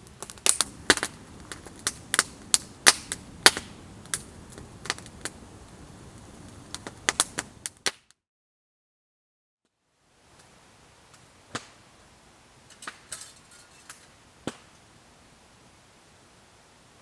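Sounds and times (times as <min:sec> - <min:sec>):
faint steady hiss: 0:00.0 - 0:07.8, 0:09.7 - 0:17.0
campfire crackling and popping: 0:00.0 - 0:08.2, 0:10.3 - 0:11.8, 0:12.6 - 0:14.9.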